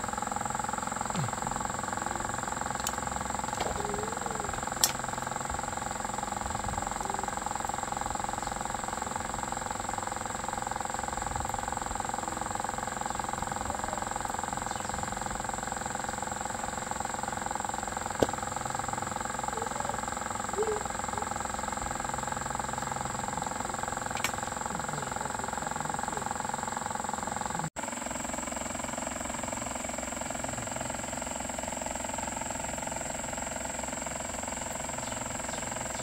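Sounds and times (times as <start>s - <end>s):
high whine: 0.0s - 27.7s
machine hum: 0.0s - 36.0s
sharp clicks: 4.8s - 5.0s, 24.1s - 24.6s.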